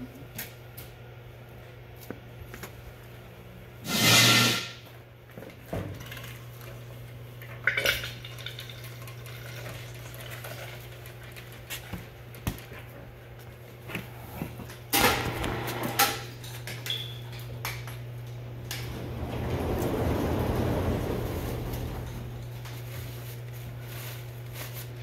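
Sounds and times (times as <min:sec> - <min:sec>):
low hum: 0:18.0 - 0:24.7
loud rattle: 0:18.6 - 0:22.8.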